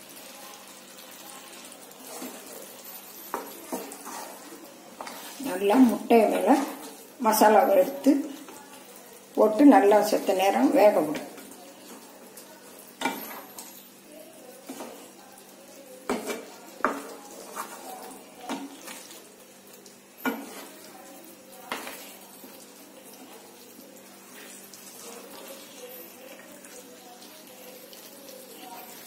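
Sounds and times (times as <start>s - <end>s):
gravy sizzling faintly: 0.0s - 29.0s
wooden spatula scraping a pan: 1.6s - 7.0s, 13.0s - 13.8s, 14.6s - 15.1s, 16.1s - 19.3s, 20.2s - 20.9s, 24.2s - 25.8s.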